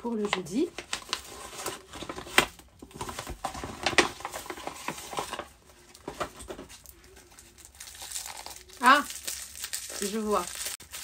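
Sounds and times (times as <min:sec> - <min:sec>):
paper packaging rustling: 0:00.1 - 0:11.0.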